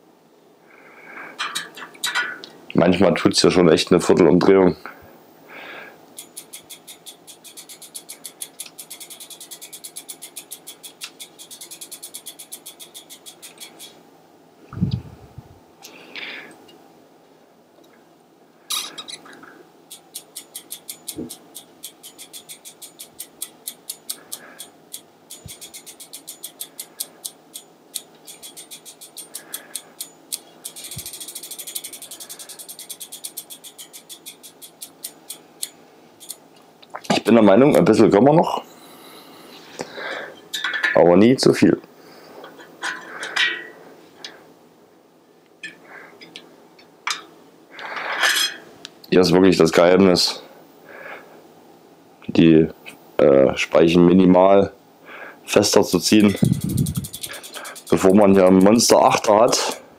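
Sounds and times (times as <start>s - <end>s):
freewheel ratchet ticking: 6.1s - 14.0s, 19.9s - 36.4s, 55.9s - 59.8s.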